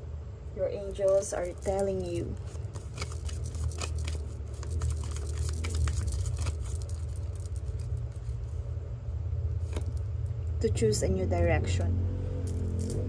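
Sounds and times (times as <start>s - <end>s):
steady low hum: 0.0s - 13.0s
cards being shuffled: 1.0s - 8.5s, 9.6s - 10.1s.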